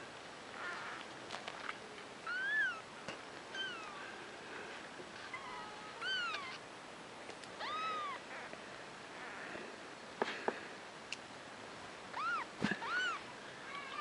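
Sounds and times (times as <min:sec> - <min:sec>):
newborn kittens mewing: 0:00.6 - 0:01.0, 0:02.2 - 0:02.9, 0:03.5 - 0:04.0, 0:05.3 - 0:06.6, 0:07.6 - 0:08.6, 0:12.2 - 0:13.2.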